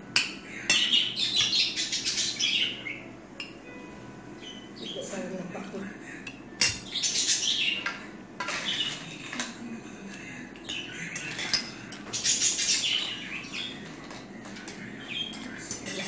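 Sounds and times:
small birds chirping: 0.1 - 3.6, 4.3 - 16.0
cutlery clinking on plates: 5.8 - 7.0, 7.8 - 16.0.

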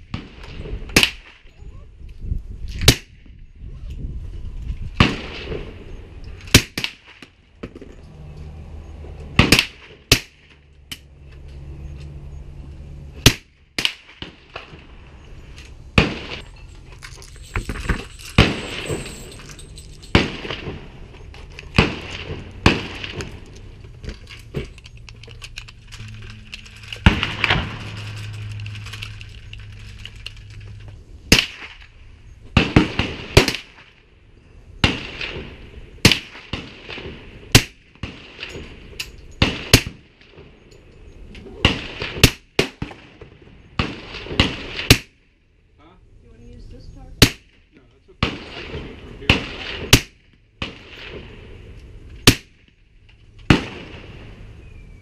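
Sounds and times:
suppressed pistol shots: 9.4 - 10.4, 21.7 - 23.5, 52.2 - 52.7
distant gunfire: 16.0 - 16.4, 20.1 - 21.0, 21.7 - 23.4, 32.6 - 33.9, 34.8 - 38.6, 41.6 - 45.2, 48.2 - 51.5, 52.2 - 52.7, 53.5 - 54.3.

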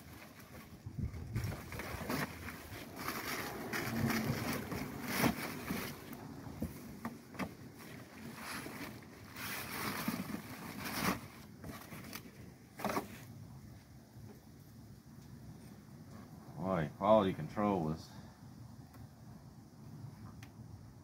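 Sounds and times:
plastic wrap crinkling: 0.0 - 6.5.

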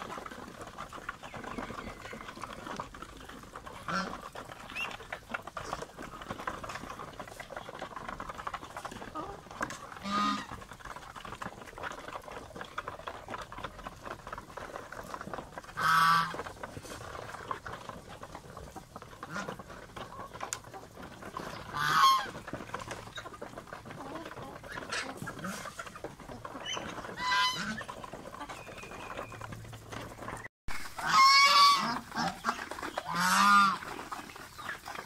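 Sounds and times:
geese honking: 1.2 - 7.5, 9.1 - 10.7, 15.7 - 17.0, 21.0 - 23.4, 24.0 - 35.0.

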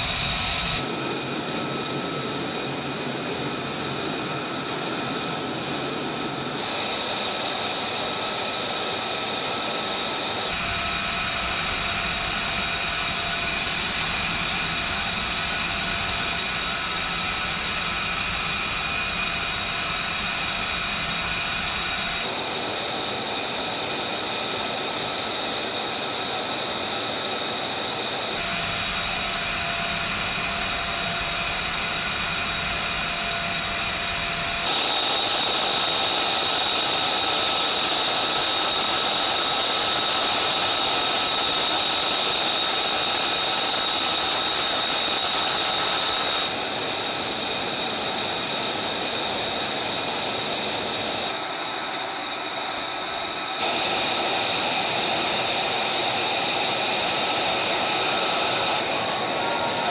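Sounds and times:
high machinery whine: 0.0 - 59.9
rushing hiss: 34.6 - 46.6.

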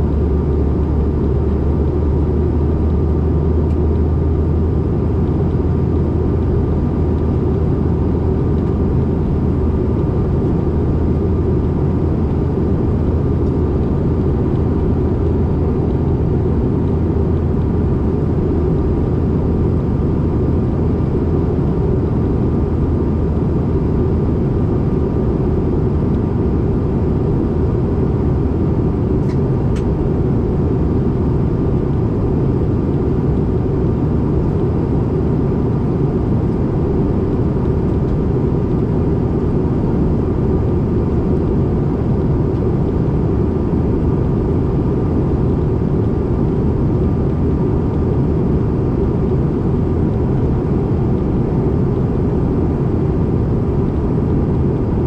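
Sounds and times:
faint steady whine: 0.0 - 55.0
jet cabin roar: 0.0 - 55.0.

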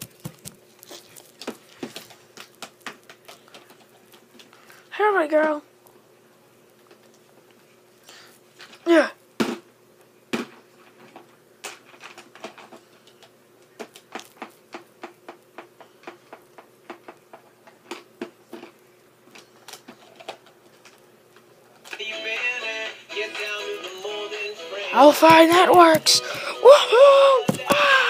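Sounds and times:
faint steady hum: 0.0 - 28.0
music: 22.0 - 27.8.

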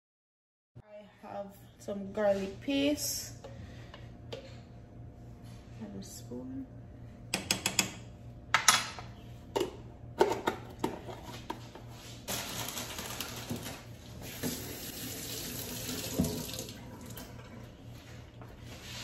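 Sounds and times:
faucet running into sink: 14.3 - 17.6.

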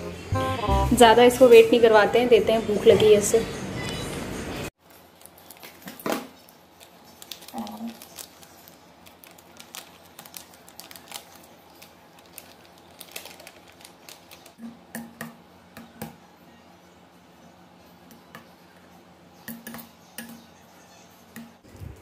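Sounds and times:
plastic pouch crinkling: 4.8 - 14.6.

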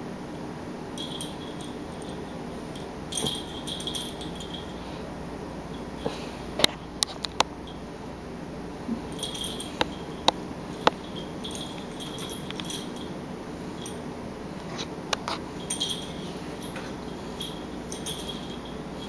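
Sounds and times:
string toy jingling: 1.0 - 4.8, 9.1 - 14.0, 15.6 - 19.0.

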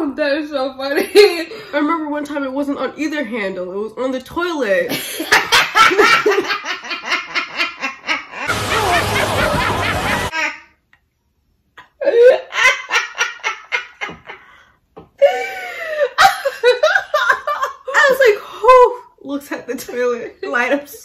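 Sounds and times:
women laughing: 4.9 - 10.5, 12.0 - 14.6.

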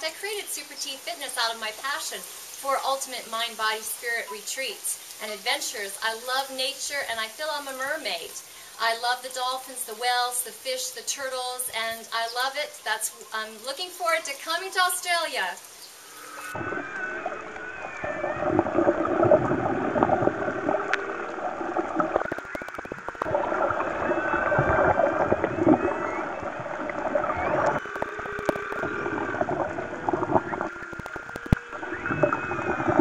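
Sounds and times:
dolphin clicks: 22.2 - 23.3, 27.6 - 29.0, 30.4 - 31.7
dolphin whistles: 24.0 - 29.1, 30.4 - 33.0.

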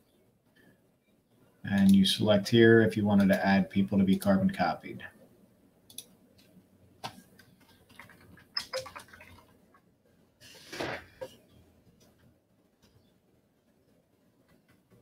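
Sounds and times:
computer mouse clicks: 5.9 - 9.1.

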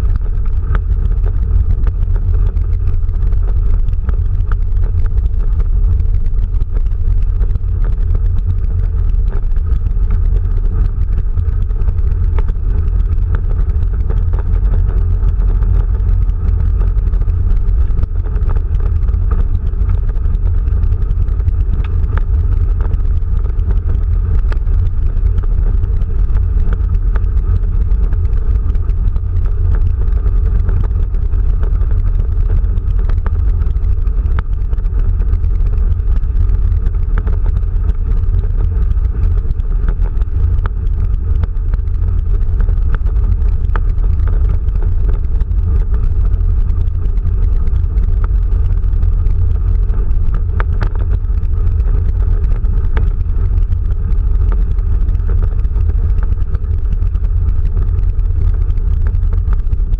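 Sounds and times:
tyre and road rumble: 0.0 - 59.9
light ticks: 3.5 - 59.9.

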